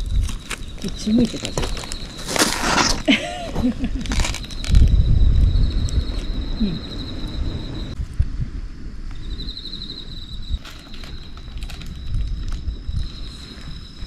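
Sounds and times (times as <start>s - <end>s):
wind rumble on microphone: 0.0s - 2.1s, 3.1s - 14.0s
insects trilling: 0.0s - 14.0s.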